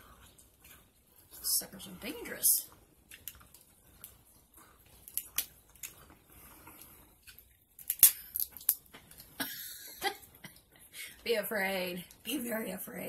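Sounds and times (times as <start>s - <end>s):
crab shells cracking: 3.0s - 9.3s.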